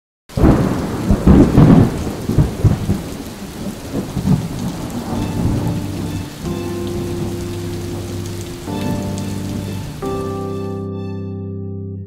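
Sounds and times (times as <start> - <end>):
rain-like hiss: 0.4 - 10.6
sustained musical tones: 5.1 - 11.8.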